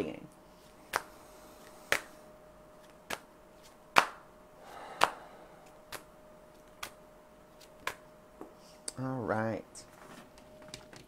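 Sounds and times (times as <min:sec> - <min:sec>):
sharp hand snaps: 0:00.9 - 0:01.1, 0:01.9 - 0:02.2, 0:03.1 - 0:03.3, 0:04.0 - 0:04.3, 0:05.0 - 0:05.2, 0:05.9 - 0:07.0, 0:07.6 - 0:08.0.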